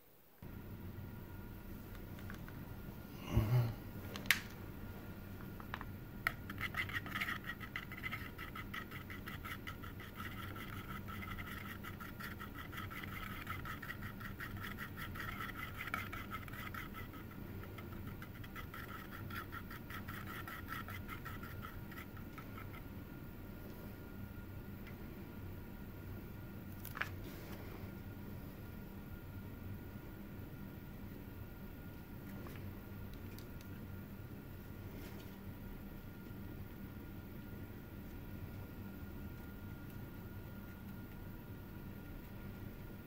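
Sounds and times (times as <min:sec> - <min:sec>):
stirrer scratching on metal lid: 0:06.3 - 0:22.9.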